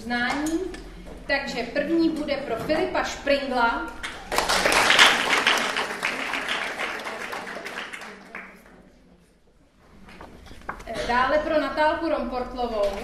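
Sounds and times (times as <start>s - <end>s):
audience clapping: 4.0s - 8.9s.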